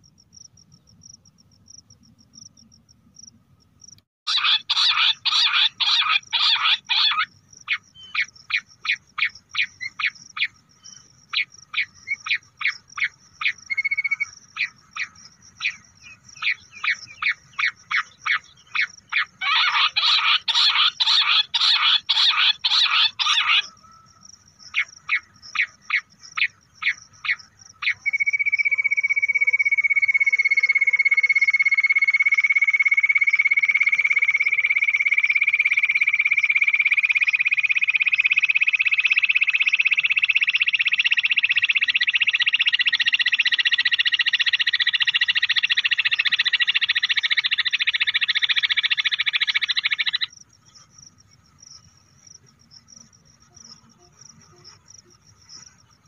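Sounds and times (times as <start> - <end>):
recorded quail calls: 4.3 - 50.3
rising rapid bird trill: 37.3 - 50.3.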